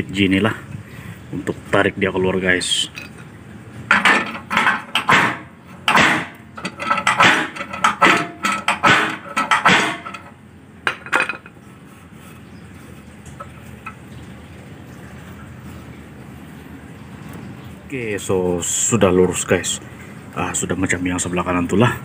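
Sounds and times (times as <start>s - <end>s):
metal clamp clanking: 3.9s - 11.6s.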